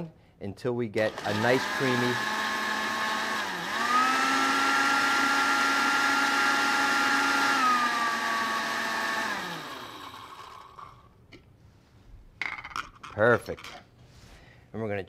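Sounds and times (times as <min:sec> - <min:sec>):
blender motor whining: 0:01.1 - 0:11.0.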